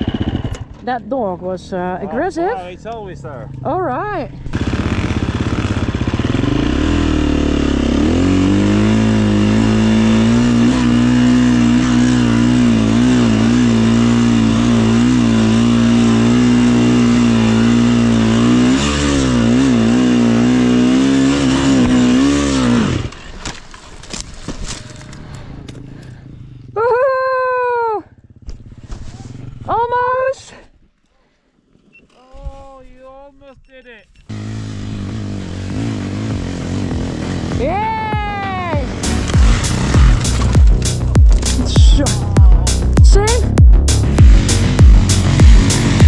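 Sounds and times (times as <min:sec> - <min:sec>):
dirt bike engine revving: 0:00.0 - 0:00.9, 0:03.2 - 0:23.2, 0:34.3 - 0:46.0.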